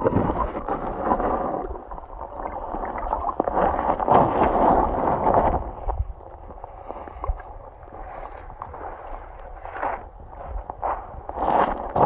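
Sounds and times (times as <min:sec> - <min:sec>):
underwater gurgling and sloshing: 0:00.0 - 0:12.0.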